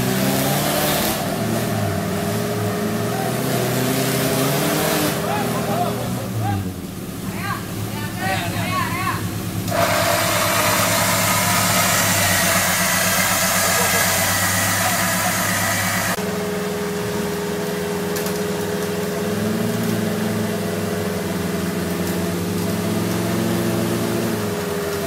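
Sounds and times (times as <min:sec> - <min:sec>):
off-road vehicle engine running: 0:00.0 - 0:25.0
loud hiss: 0:09.5 - 0:16.2.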